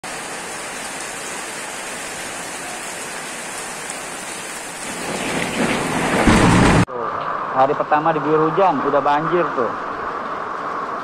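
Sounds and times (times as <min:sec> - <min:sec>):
rain falling on pavement: 0:00.0 - 0:06.9.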